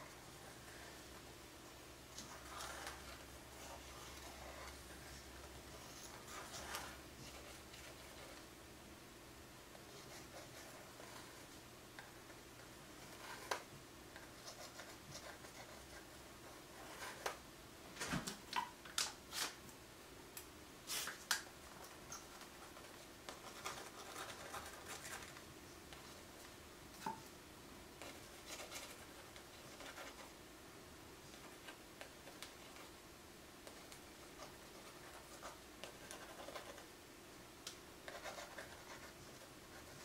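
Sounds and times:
paintbrush scratching on paper: 0:33.7 - 0:36.9, 0:38.0 - 0:40.0.

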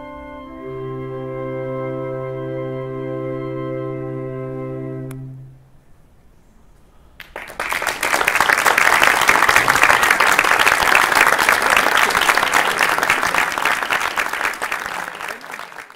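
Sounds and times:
audience applause: 0:07.2 - 0:15.9.

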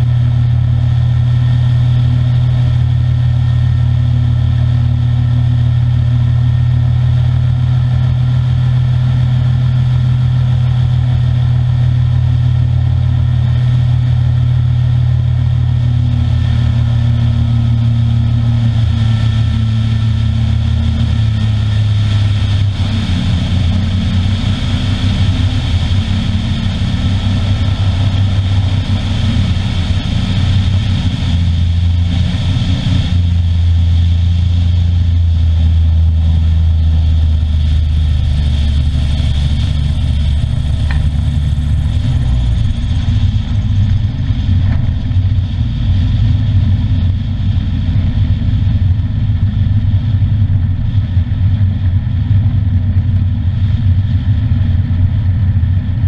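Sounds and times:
ultralight trike engine running: 0:00.0 - 0:56.0
wind rush on microphone: 0:00.0 - 0:56.0.

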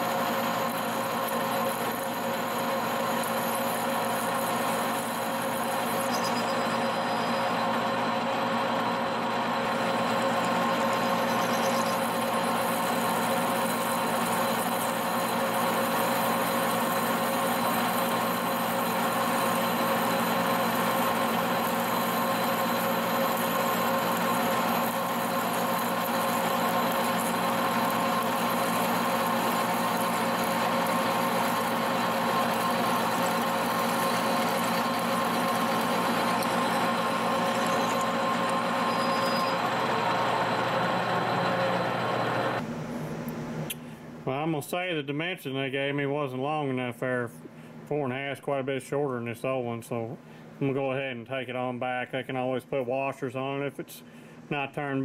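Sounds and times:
lathe drilling steel: 0:00.0 - 0:42.6.

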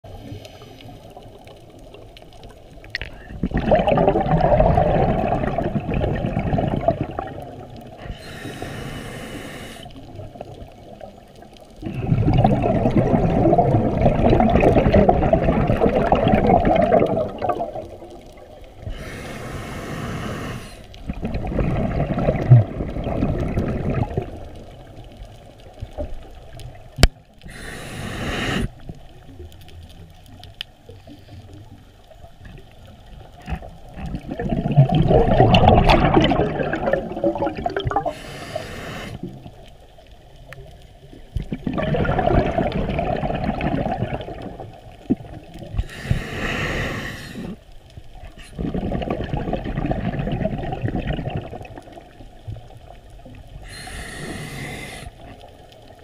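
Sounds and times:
hissing regulator inhalations: 0:00.1 - 0:01.3, 0:08.0 - 0:10.1, 0:18.8 - 0:21.0, 0:27.4 - 0:28.8, 0:38.0 - 0:39.4, 0:45.8 - 0:47.8, 0:53.6 - 0:55.4
bubbling exhalations underwater: 0:03.0 - 0:08.2, 0:11.8 - 0:19.2, 0:20.0 - 0:24.9, 0:33.4 - 0:39.6, 0:41.4 - 0:47.6, 0:48.4 - 0:52.2.

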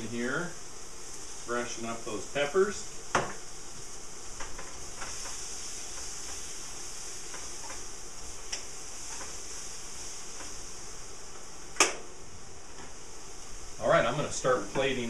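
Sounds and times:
peppers sizzling in a frying pan: 0:00.0 - 0:15.0.

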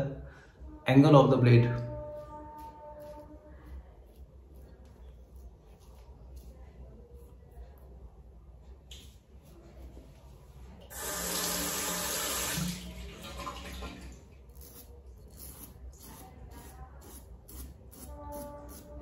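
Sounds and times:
razor scraping stubble: 0:14.5 - 0:19.0.

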